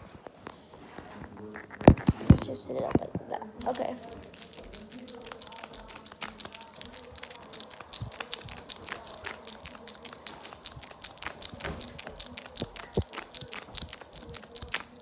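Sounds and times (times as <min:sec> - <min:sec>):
plastic wrapper crinkling: 0:03.6 - 0:15.0.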